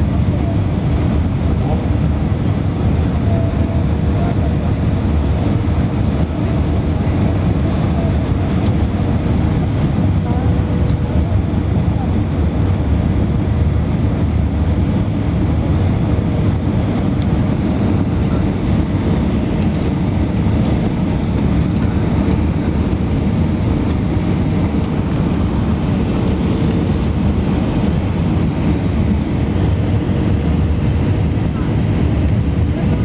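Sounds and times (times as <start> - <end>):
engine and airflow roar: 0.0 - 33.0.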